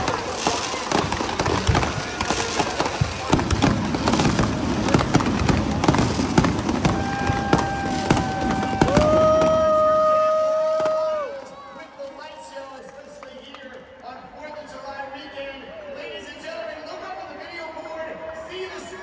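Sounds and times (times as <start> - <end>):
fireworks crackling and popping: 0.0 - 11.8.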